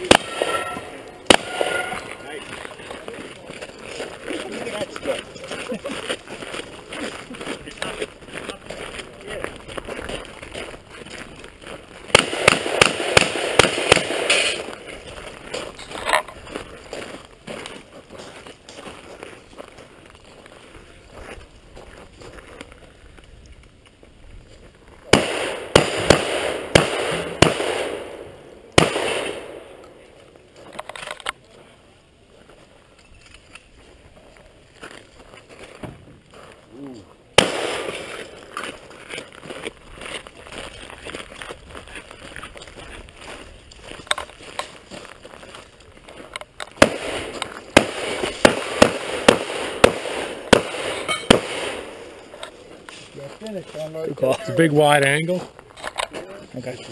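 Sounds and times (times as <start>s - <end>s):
shotgun shots: 0.0s - 2.1s, 12.1s - 14.7s, 25.1s - 29.8s, 37.4s - 38.3s, 46.8s - 52.1s
echo of gunshots: 0.0s - 2.5s, 12.1s - 14.8s, 25.1s - 30.0s, 37.4s - 38.4s, 46.8s - 52.2s.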